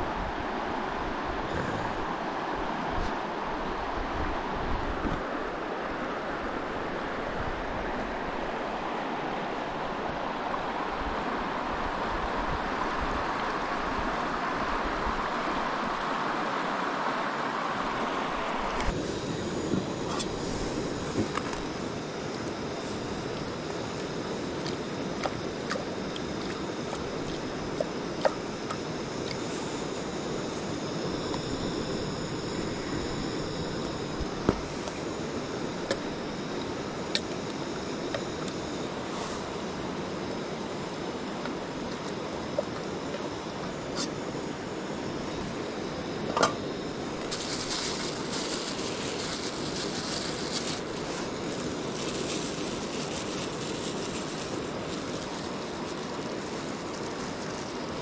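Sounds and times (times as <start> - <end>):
plastic bag crinkling: 47.2 - 58.0.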